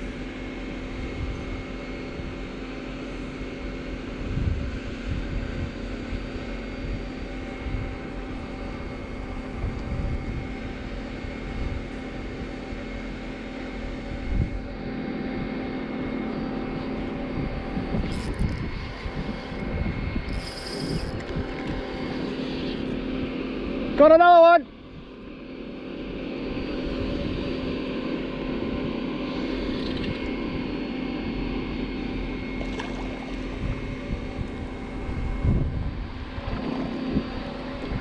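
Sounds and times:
steady droning hum: 0:00.0 - 0:38.0
wind buffeting microphone: 0:04.2 - 0:11.9, 0:14.2 - 0:14.7, 0:17.0 - 0:22.2, 0:33.4 - 0:38.0
high-pitched buzz: 0:15.7 - 0:24.7.

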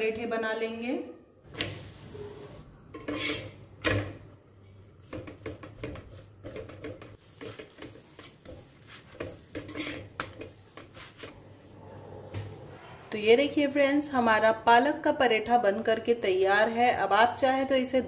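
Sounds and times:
spatula scraping on iron griddle: 0:02.0 - 0:03.6, 0:07.2 - 0:11.4.

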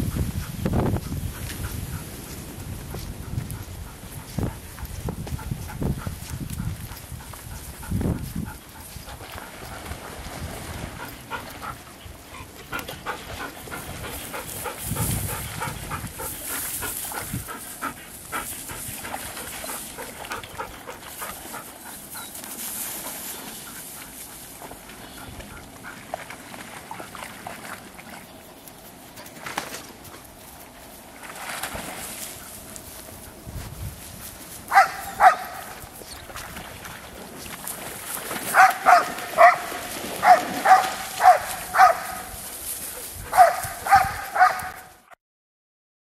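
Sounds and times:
dog barking: 0:34.7 - 0:35.7, 0:38.5 - 0:42.3, 0:43.3 - 0:44.9.

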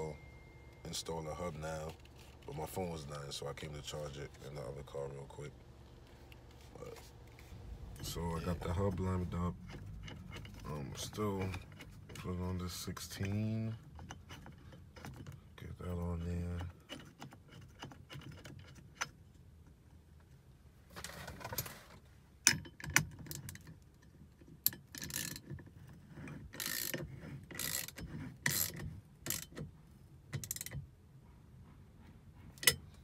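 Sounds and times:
ratchet wrench ratcheting: 0:24.6 - 0:25.6, 0:26.2 - 0:29.7, 0:30.4 - 0:30.8.

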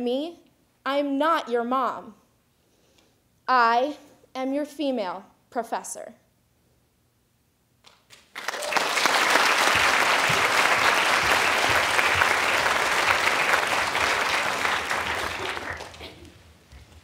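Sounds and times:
audience applauding: 0:08.3 - 0:16.4.

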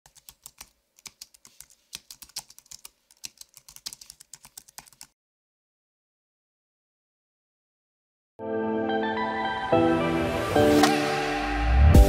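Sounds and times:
computer keyboard typing: 0:00.1 - 0:05.2.

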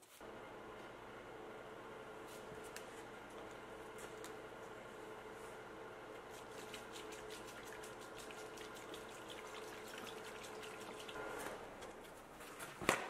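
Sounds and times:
liquid pouring and splashing: 0:06.3 - 0:11.2.

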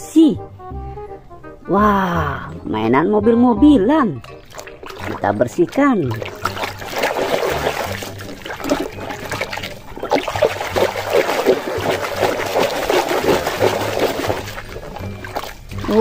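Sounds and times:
water splashing in a basin: 0:04.2 - 0:16.0.

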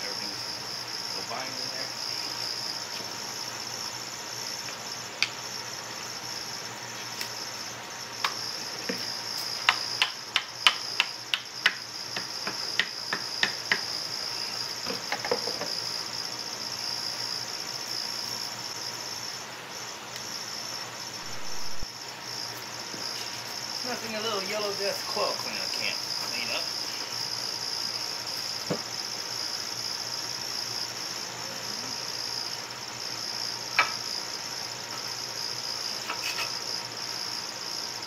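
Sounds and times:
steady high-pitched whine: 0:00.0 - 0:38.0
mallet tapping plastic fan: 0:09.7 - 0:13.8.

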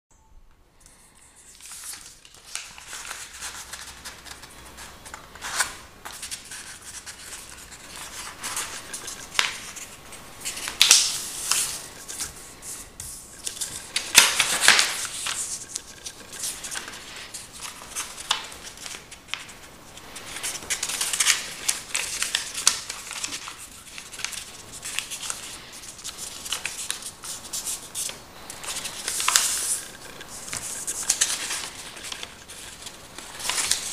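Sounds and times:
paper rustling and crinkling: 0:01.2 - 0:33.9.

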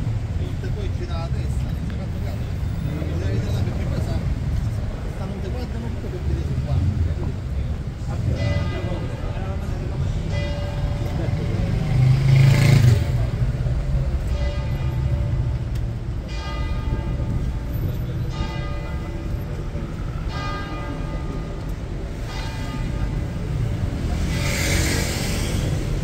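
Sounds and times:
low rumble of city traffic: 0:00.0 - 0:26.0
church bell tolling: 0:08.3 - 0:11.8, 0:14.2 - 0:24.1.

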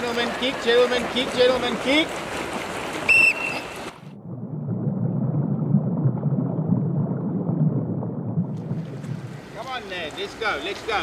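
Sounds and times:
swimmers splashing: 0:00.0 - 0:04.1
muffled underwater churning: 0:00.9 - 0:10.0
whistle blast: 0:03.1 - 0:03.8.

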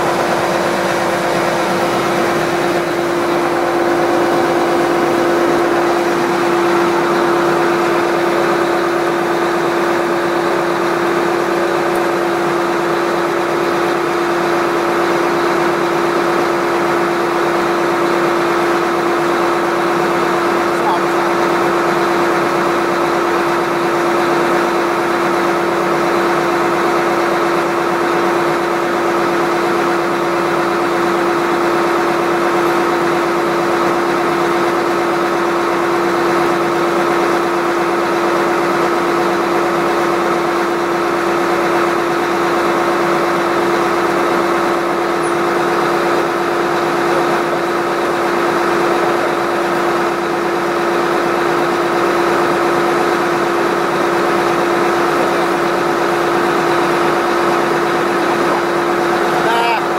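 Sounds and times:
drilling rig engine humming: 0:00.0 - 0:59.9.

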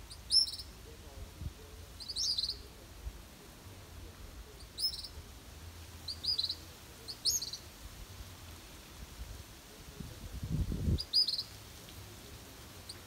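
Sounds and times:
young bird chirping: 0:00.1 - 0:00.7, 0:02.0 - 0:02.7, 0:04.6 - 0:05.2, 0:06.0 - 0:07.6, 0:11.0 - 0:11.5.

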